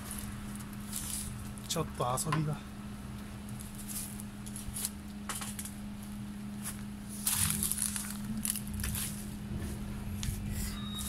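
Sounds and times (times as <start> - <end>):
footsteps through dry grass: 0.0 - 1.8, 3.5 - 5.6, 6.6 - 9.4
steady low hum: 0.0 - 11.0.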